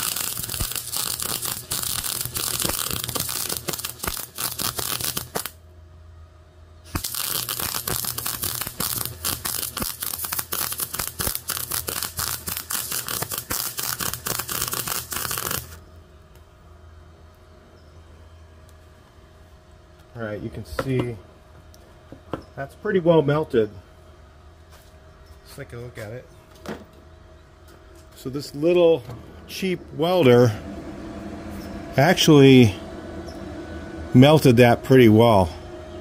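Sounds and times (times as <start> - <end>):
welder arc crackling: 0.0 - 5.6, 6.9 - 15.8.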